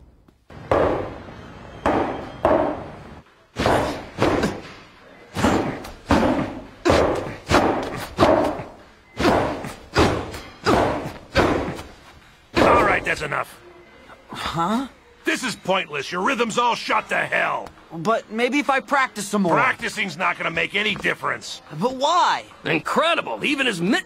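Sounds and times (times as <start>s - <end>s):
gloves punching focus mitts: 5.4s - 12.0s.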